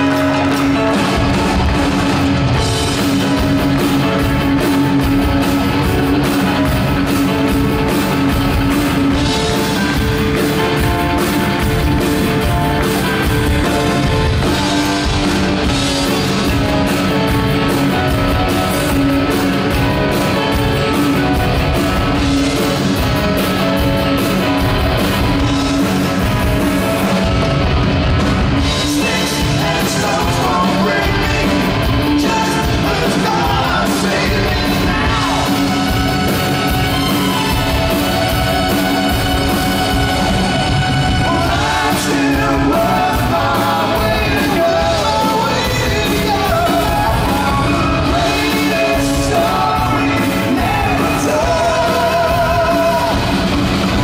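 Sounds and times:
drum kit: 0.0 - 54.0
electric guitar: 0.0 - 54.0
keyboards: 0.0 - 54.0.

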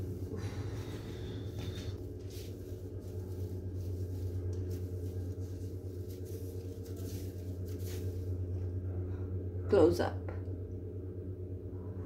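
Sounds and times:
broom sweeping tiled floor: 0.0 - 8.7
low electrical hum: 0.0 - 12.0.

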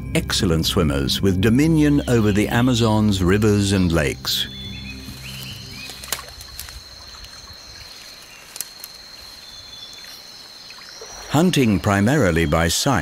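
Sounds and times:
low background music: 0.0 - 6.6
high-pitched insect drone: 0.0 - 13.0
faint sharp clicks: 8.5 - 9.0.

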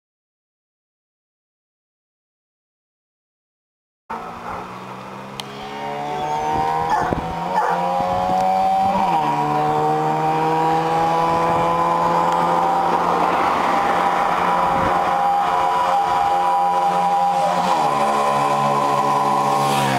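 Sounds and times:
motorcycle engine revving: 4.1 - 19.9.

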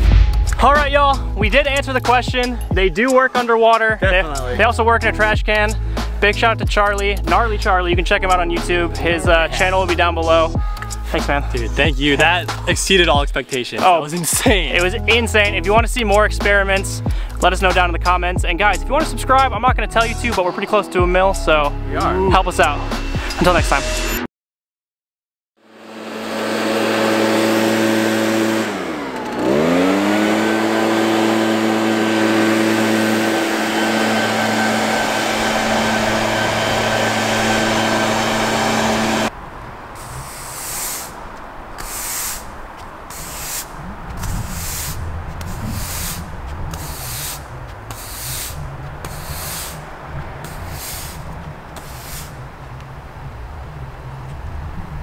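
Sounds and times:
leaf blower engine running: 25.6 - 39.3, 40.0 - 41.2, 43.1 - 52.4
swishing strokes: 40.0 - 41.2, 41.8 - 52.4.

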